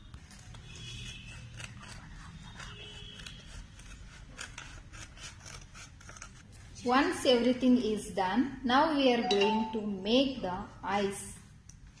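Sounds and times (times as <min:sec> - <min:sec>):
scissors cutting stiff paper: 0:00.0 - 0:06.5.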